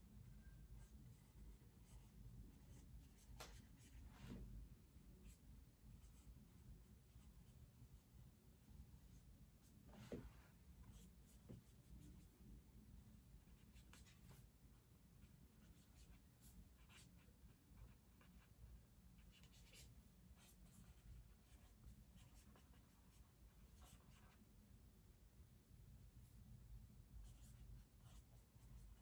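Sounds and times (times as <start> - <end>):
low room hum: 0.0 - 29.0
pen scratching on paper: 15.6 - 18.5, 19.2 - 24.4, 27.2 - 29.0.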